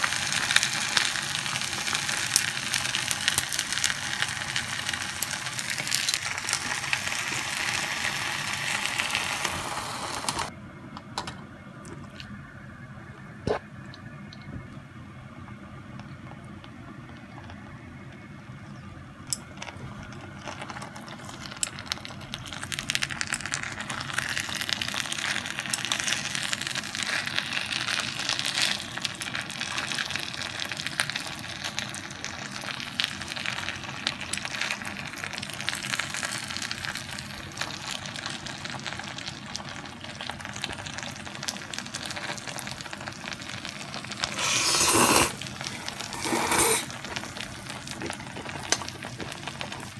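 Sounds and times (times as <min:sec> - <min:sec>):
noodles sizzling and crackling: 0:00.0 - 0:10.5, 0:15.4 - 0:49.9
chopsticks stirring noodles: 0:44.2 - 0:49.9.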